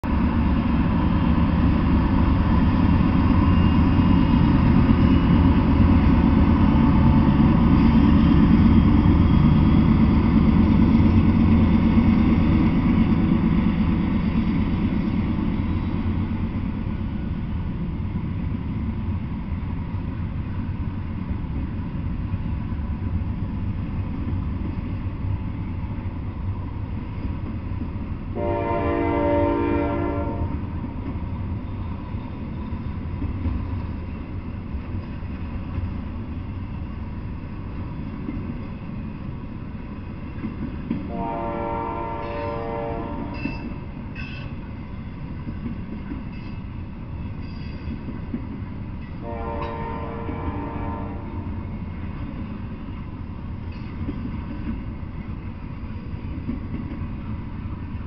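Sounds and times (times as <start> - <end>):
diesel locomotives rumbling past: 0.0 - 58.0
train cars rolling on rails: 0.0 - 58.0
train horn: 28.4 - 30.7, 41.1 - 44.5, 49.2 - 51.7.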